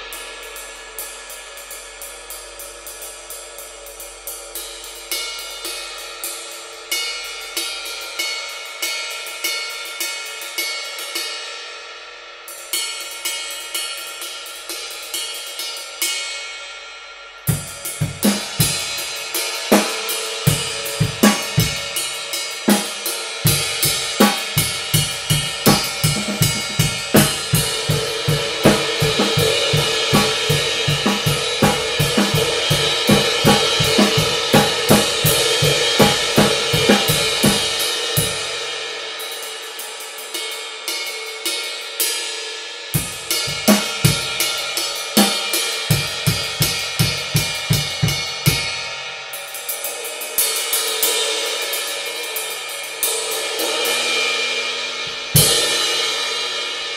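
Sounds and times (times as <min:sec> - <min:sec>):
ride cymbal played with drumstick: 0:00.0 - 0:56.9
drums playing: 0:17.5 - 0:39.5, 0:43.0 - 0:48.9, 0:49.6 - 0:56.9.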